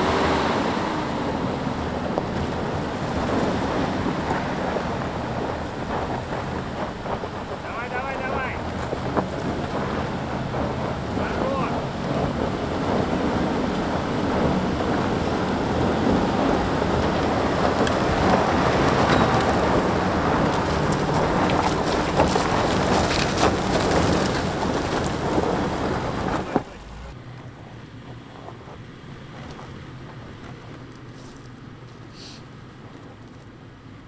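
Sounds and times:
distant suv engine: 0.0 - 34.0
suv engine roaring: 0.0 - 34.0
tyres scrabbling on gravel: 0.1 - 33.7
stones knocking: 16.5 - 27.0.

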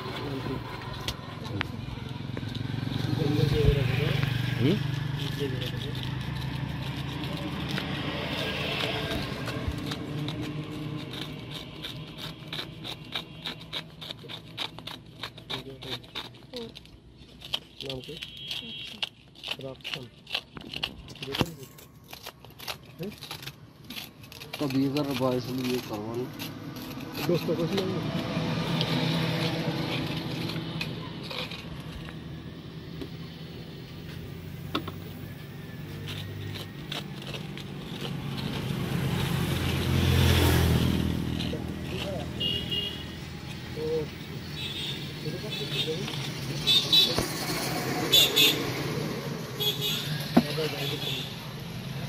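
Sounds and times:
knife scraping fruit rind: 0.0 - 52.0.

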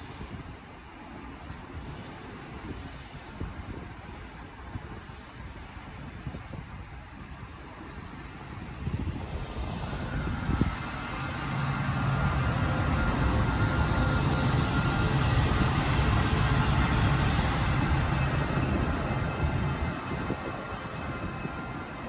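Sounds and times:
train wheels rolling on rails: 7.2 - 22.0
power car hum and whine: 8.9 - 22.0.

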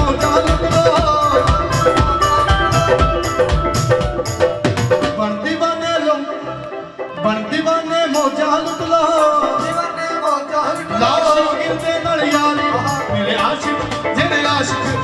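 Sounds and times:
hand drums beating: 0.0 - 5.2
keyboard melody: 0.0 - 15.0.

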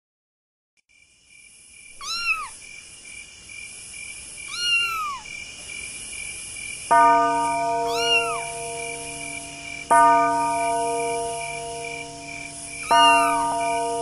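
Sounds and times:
crickets chirring: 0.9 - 14.0
cat meowing: 2.0 - 2.6, 4.5 - 5.3, 7.9 - 8.5, 12.8 - 13.4.

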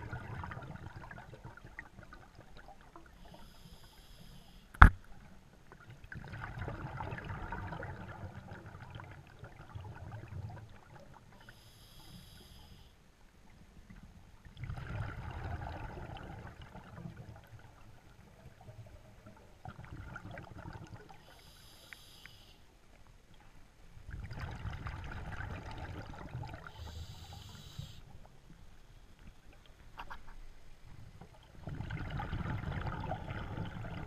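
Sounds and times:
exhaled air bubbling: 0.0 - 3.1, 5.8 - 11.5, 14.5 - 21.3, 24.0 - 27.7, 31.2 - 34.0
diver breathing through regulator: 3.3 - 4.7, 11.4 - 13.0, 21.2 - 22.6, 26.7 - 28.1.

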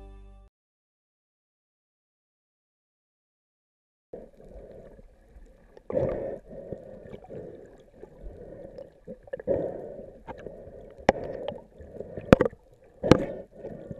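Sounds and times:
underwater sloshing and gurgling: 4.2 - 13.9.

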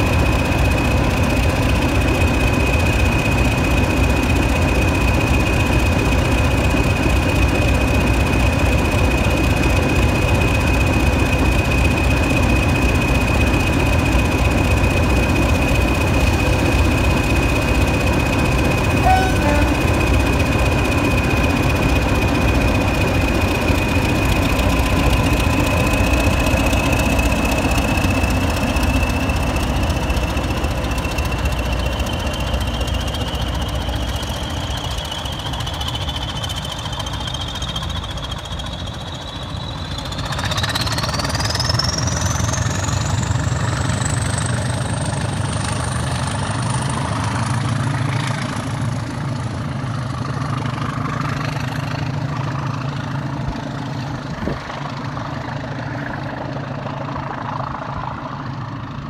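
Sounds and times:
diesel locomotives rumbling: 0.0 - 59.0
turbocharger whistle: 18.9 - 20.1.

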